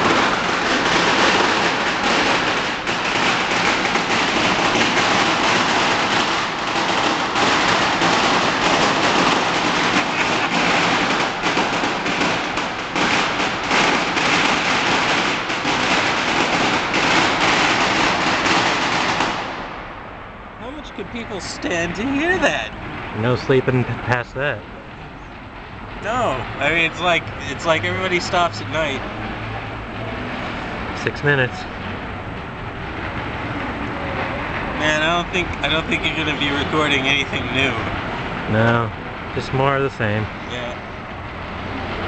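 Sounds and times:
firecrackers crackling: 0.0 - 19.8.

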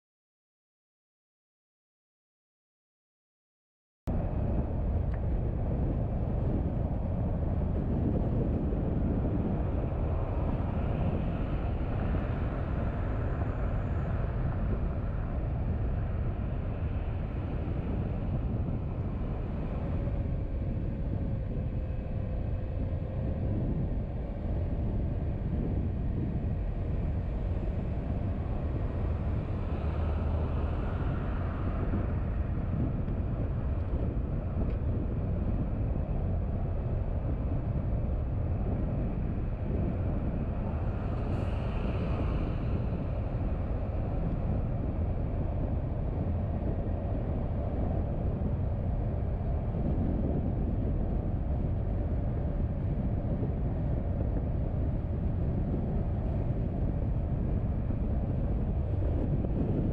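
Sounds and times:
car engine and tyre noise: 4.1 - 59.9
faint whine: 4.1 - 59.9.

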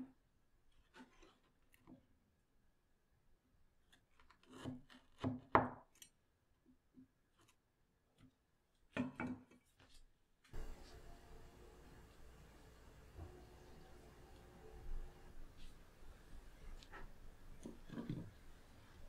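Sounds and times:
faint steady hiss: 10.4 - 19.0.

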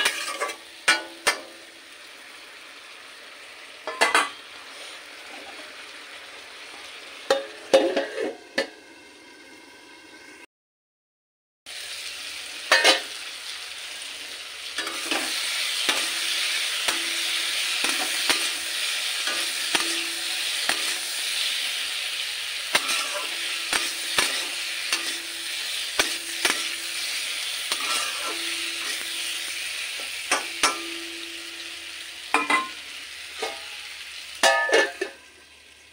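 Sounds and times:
metal spatula scraping a pan: 0.0 - 1.4, 7.3 - 8.4, 14.7 - 31.7, 32.3 - 35.2
oil sizzling: 0.0 - 10.5, 11.7 - 35.9.

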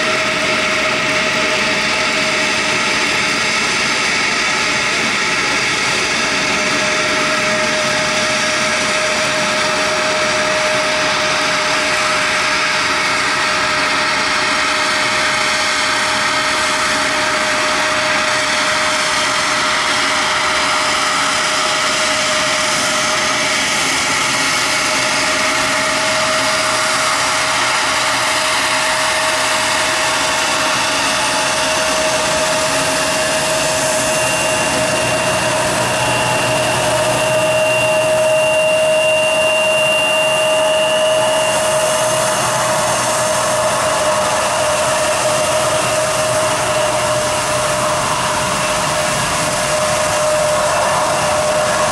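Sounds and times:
jet engines whining: 0.0 - 51.9
rushing noise: 15.8 - 51.9.

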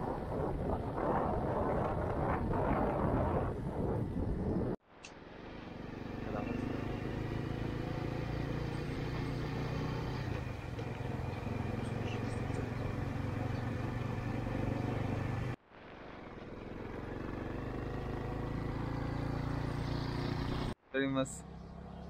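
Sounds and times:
engine droning: 5.0 - 22.0.

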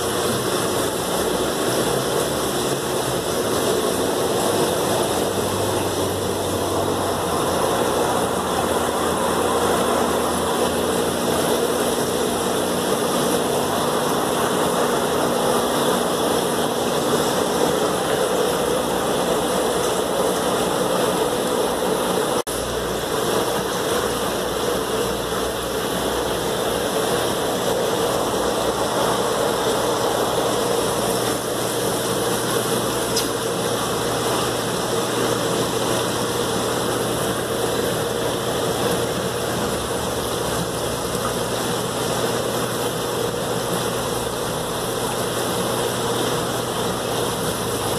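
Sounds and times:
hiss of air and water: 0.0 - 47.9.

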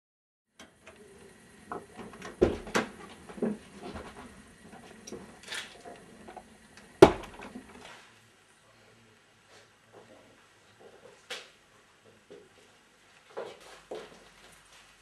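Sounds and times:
irregular knocks and bumps: 1.6 - 5.3, 6.2 - 7.8.

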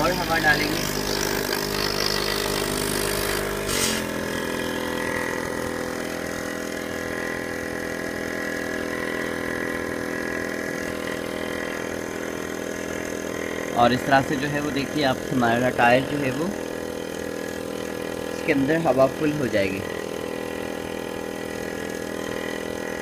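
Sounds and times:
air compressor running: 0.0 - 23.0
short air hiss: 3.6 - 4.2.

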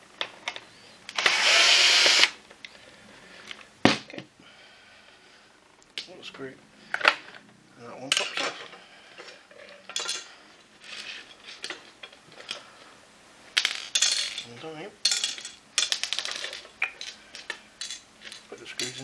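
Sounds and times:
screws and plastic parts rattling: 8.2 - 12.7, 13.6 - 19.0.

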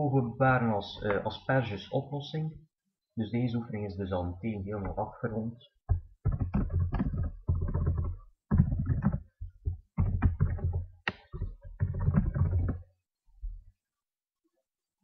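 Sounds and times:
keyboard typing: 5.8 - 12.9.

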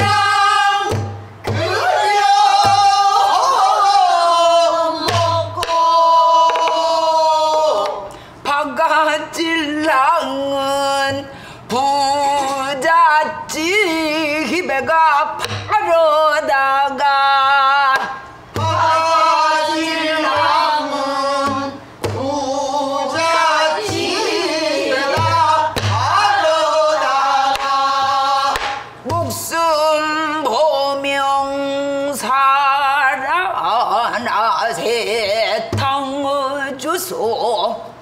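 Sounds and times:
woman singing with vibrato: 0.0 - 38.0
barrel drum strokes: 18.4 - 29.4.

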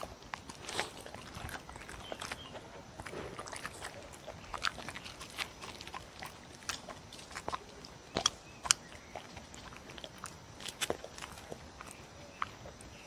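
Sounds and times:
dog chewing and licking: 0.0 - 13.0.

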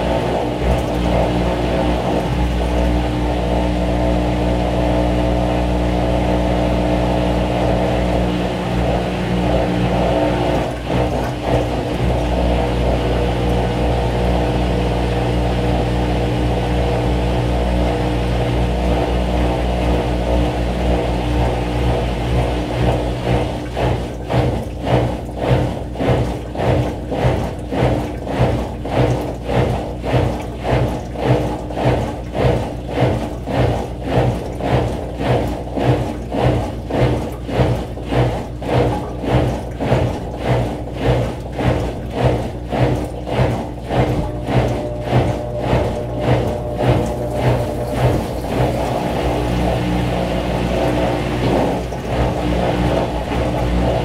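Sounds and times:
washing machine motor hum: 0.0 - 54.0
regular pulsing: 42.6 - 54.0.

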